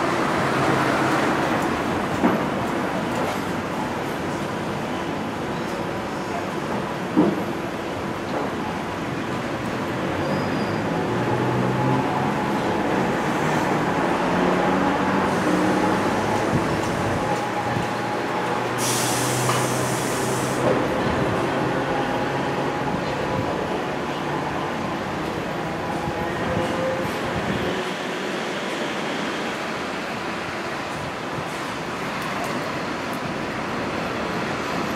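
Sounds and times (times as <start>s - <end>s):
streetcar rumbling on rails: 0.0s - 34.9s
hiss: 18.8s - 20.7s.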